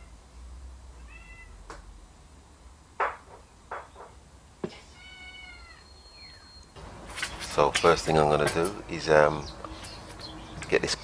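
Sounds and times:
cat meowing: 1.0 - 1.6, 4.9 - 5.9.

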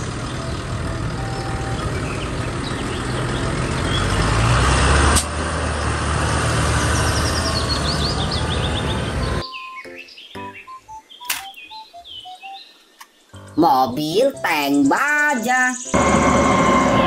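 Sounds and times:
birds chirping: 0.0 - 4.8, 5.6 - 16.0
tractor diesel engine running: 0.0 - 9.4, 16.0 - 17.0.

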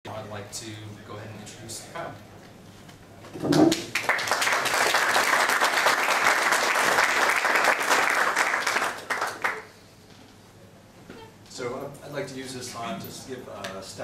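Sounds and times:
audience applauding: 3.6 - 9.7.

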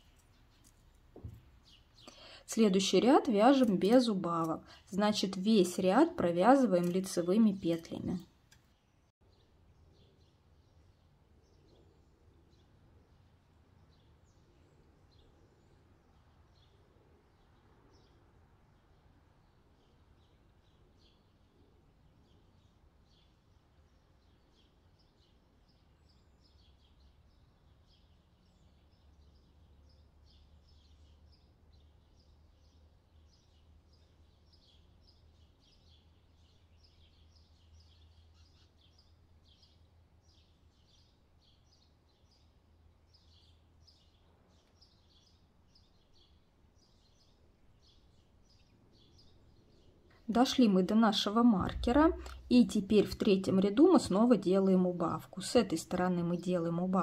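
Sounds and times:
knitting needles clicking: 3.0 - 8.7
low steady hum: 31.7 - 57.0.

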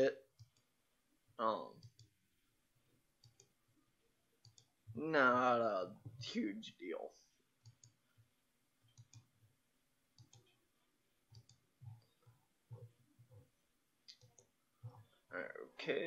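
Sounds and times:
faint computer mouse clicks: 0.4 - 0.7, 3.2 - 3.5, 10.2 - 10.5, 11.3 - 12.1.

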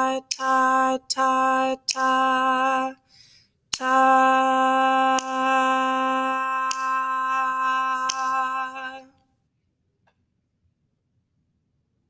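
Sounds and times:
woman singing a held note: 3.8 - 9.2
sharp beat clicks: 5.1 - 5.6, 6.6 - 8.8.

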